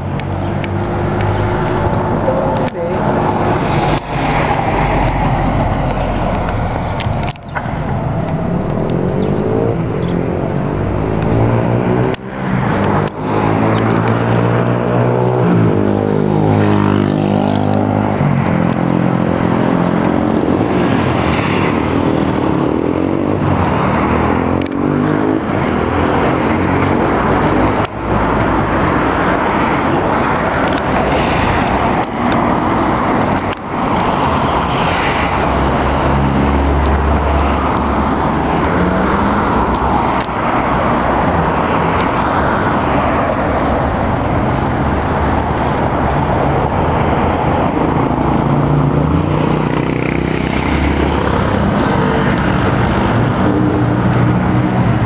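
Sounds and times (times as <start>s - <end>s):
vehicle engine and road noise: 0.0s - 55.0s.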